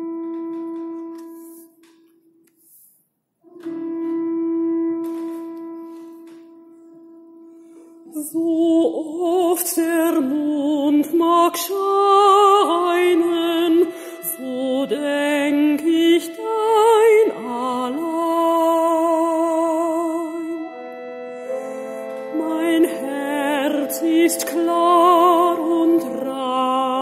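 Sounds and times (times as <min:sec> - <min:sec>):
pipe organ sustained tones: 0:00.0 - 0:01.9, 0:03.5 - 0:09.4, 0:10.0 - 0:27.0
woman singing with vibrato: 0:08.1 - 0:20.8, 0:21.6 - 0:27.0.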